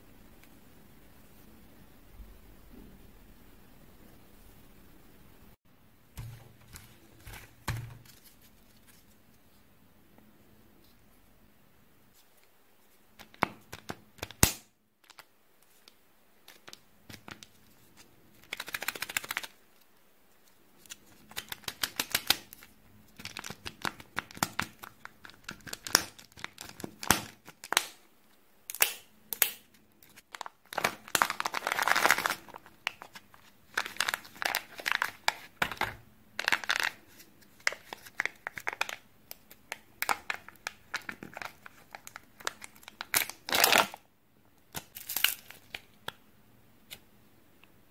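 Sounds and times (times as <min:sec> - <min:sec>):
crinkling: 0:06.2 - 0:09.6, 0:15.0 - 0:28.9, 0:29.6 - 0:44.1, 0:44.7 - 0:46.2.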